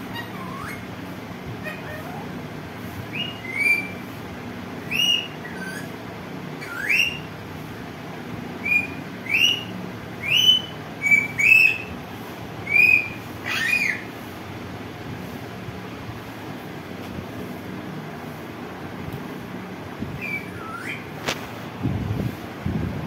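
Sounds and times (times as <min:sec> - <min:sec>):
parakeet whistled calls: 0:00.0 - 0:00.9, 0:01.6 - 0:02.4, 0:03.1 - 0:04.1, 0:04.8 - 0:06.0, 0:06.6 - 0:07.3, 0:08.6 - 0:12.0, 0:12.6 - 0:14.1, 0:20.2 - 0:21.2
steady low hum: 0:00.0 - 0:23.0.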